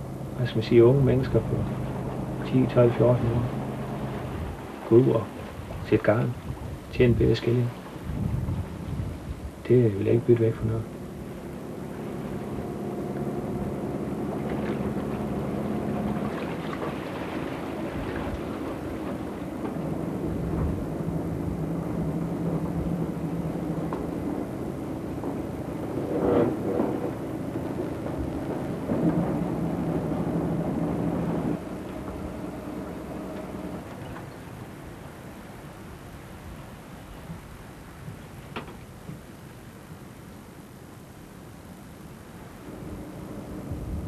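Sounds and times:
boat engine hum: 0.0s - 44.0s.

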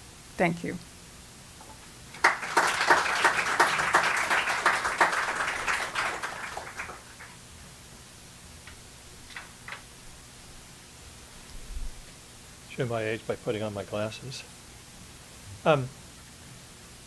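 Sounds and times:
audience applauding: 2.1s - 7.4s.

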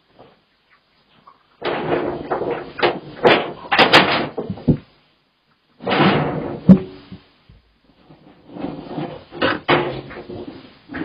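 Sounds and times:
clattering rattle: 1.6s - 4.8s.

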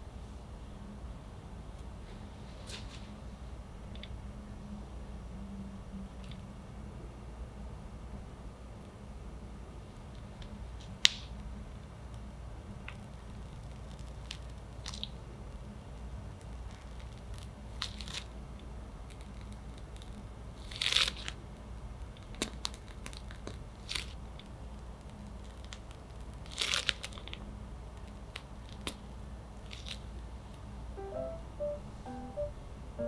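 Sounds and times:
plastic piping bag crinkling: 22.2s - 24.2s, 25.0s - 27.4s
low steady hum: 30.8s - 33.0s.

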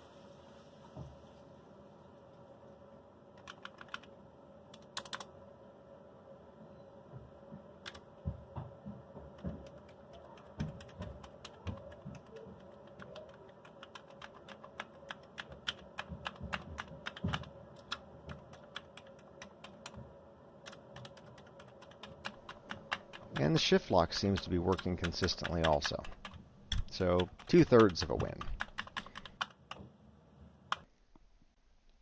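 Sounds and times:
plastic keyboard key clicks: 24.1s - 29.8s.

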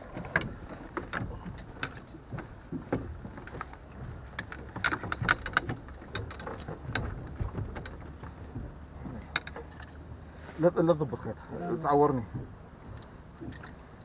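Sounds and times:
landing net knocking against boat: 0.0s - 9.8s
steady low rumble: 0.0s - 14.0s.

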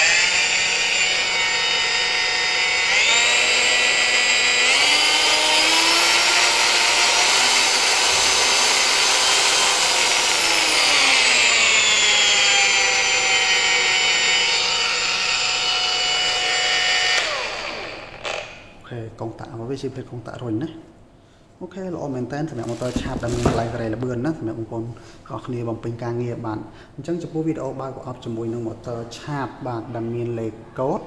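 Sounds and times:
angle grinder motor whine: 0.0s - 18.7s.

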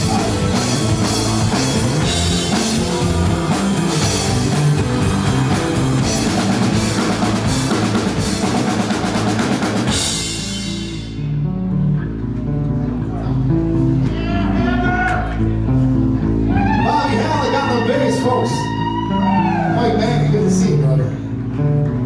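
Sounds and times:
drum beat: 0.0s - 10.9s
live rock band playing: 0.0s - 22.0s.

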